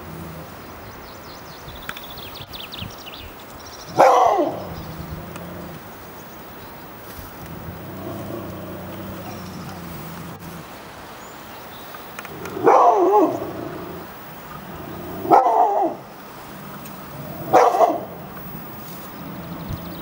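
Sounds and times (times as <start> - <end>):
dog barking: 3.9 - 4.8, 12.5 - 13.5, 15.2 - 16.1, 17.4 - 18.3.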